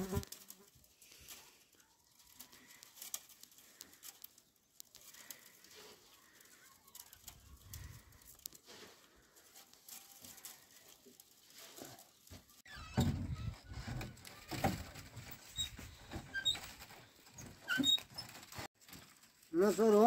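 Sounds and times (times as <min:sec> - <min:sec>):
bamboo strips scraping and tapping: 0:00.0 - 0:12.7.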